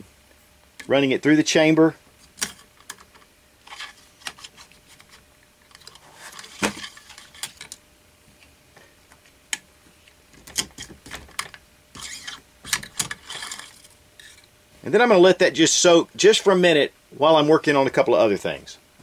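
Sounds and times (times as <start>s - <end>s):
cleaning rod scraping metal: 11.9s - 12.4s, 13.2s - 14.5s.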